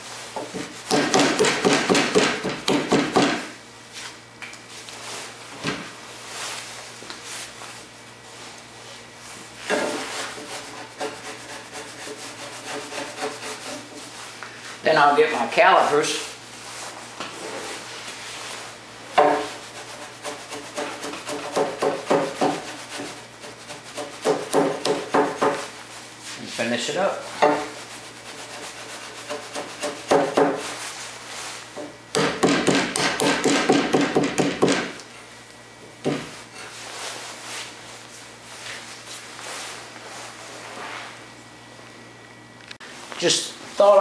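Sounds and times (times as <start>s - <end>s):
chisel scraping wood: 9.7s - 14.1s, 19.2s - 25.7s, 27.4s - 30.6s.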